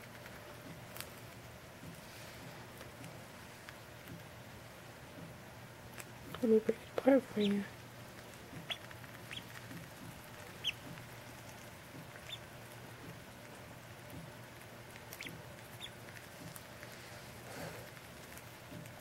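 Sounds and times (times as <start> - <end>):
ducklings peeping: 6.0 - 7.8, 8.4 - 16.8.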